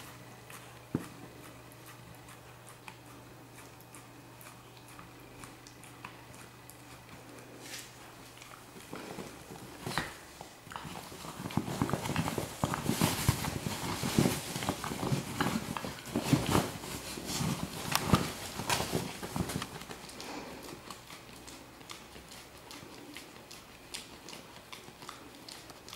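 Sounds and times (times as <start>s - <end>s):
dog chewing fabric pillow: 0.0s - 25.9s.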